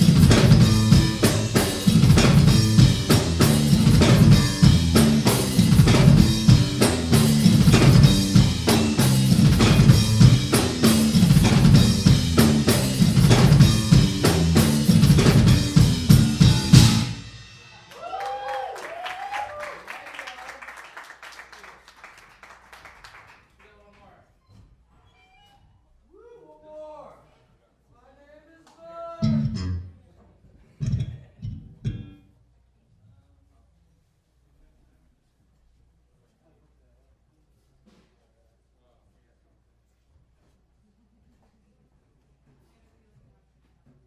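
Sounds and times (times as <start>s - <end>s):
electric bass line: 0.0s - 17.5s, 29.2s - 30.0s, 30.8s - 32.3s
fast instrumental rock tune: 0.0s - 17.9s, 29.2s - 29.9s
drum kit playing: 0.0s - 18.2s, 29.2s - 30.0s, 30.8s - 32.2s.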